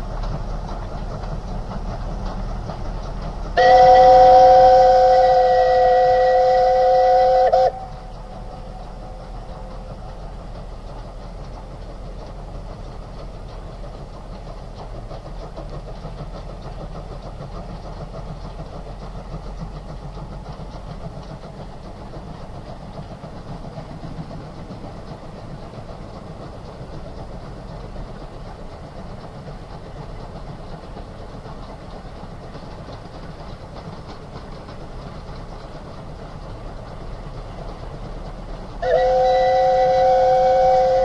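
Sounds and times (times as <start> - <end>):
steam train running: 0.0 - 41.0
two-tone steam whistle: 3.5 - 9.9, 38.7 - 41.0.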